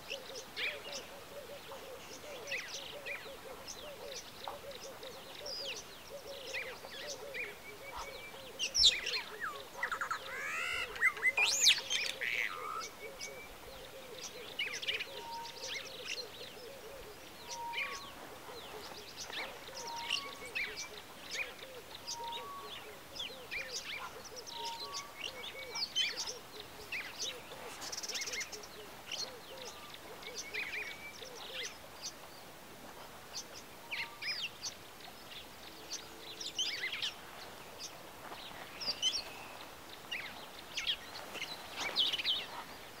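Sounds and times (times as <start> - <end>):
low repeated bird notes: 0.0 - 43.0
birds chirping and whistling: 0.1 - 32.2
bird trill: 14.7 - 31.8.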